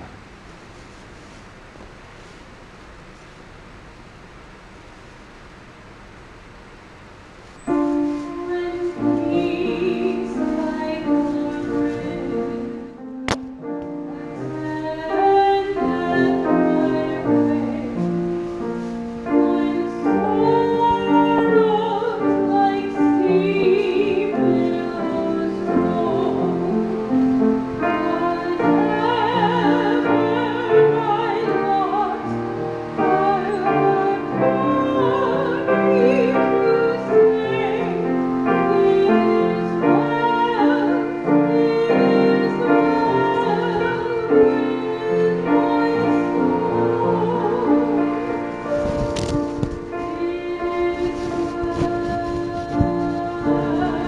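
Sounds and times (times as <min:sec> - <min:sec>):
solo voice singing with vibrato: 0:19.3 - 0:27.0, 0:27.7 - 0:48.5, 0:50.0 - 0:54.0.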